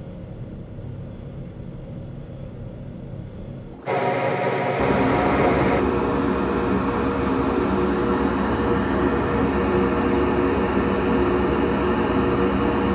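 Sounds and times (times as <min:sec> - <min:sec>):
machine whir: 0:03.7 - 0:09.5
low hum: 0:03.8 - 0:12.9.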